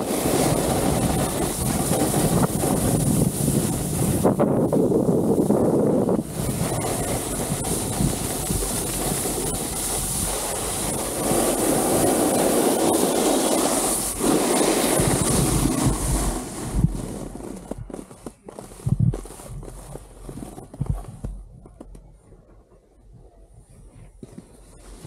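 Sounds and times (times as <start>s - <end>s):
wind rushing on microphone: 0.0s - 17.9s, 18.8s - 21.8s
skis scraping over snow: 0.0s - 21.5s, 24.1s - 25.0s
clicks and knocks of skis: 6.6s - 22.9s, 23.9s - 25.0s.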